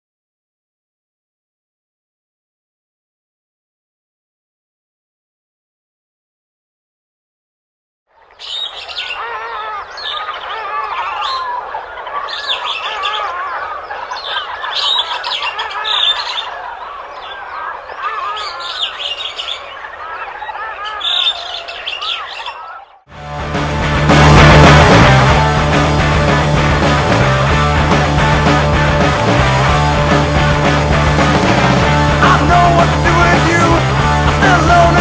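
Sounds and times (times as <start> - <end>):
songbirds chorus: 8.1 - 23.1
loud rock music: 23.1 - 35.0.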